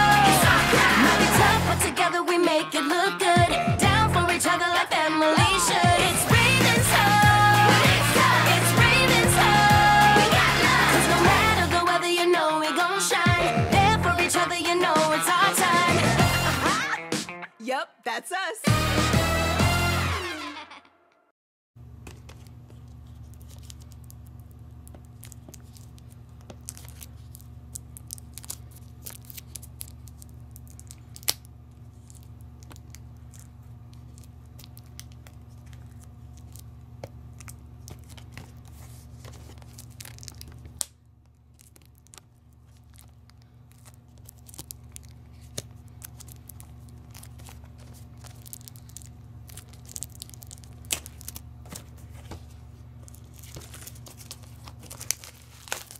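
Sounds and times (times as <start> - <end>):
steady low hum: 0.0 - 2.1, 3.3 - 12.1, 21.8 - 55.9
plastic packaging tearing and crinkling: 22.3 - 55.9.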